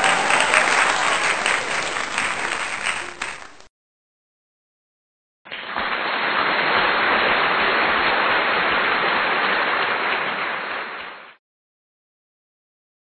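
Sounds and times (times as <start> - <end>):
crowd applause: 0.0 - 3.7, 5.5 - 11.4.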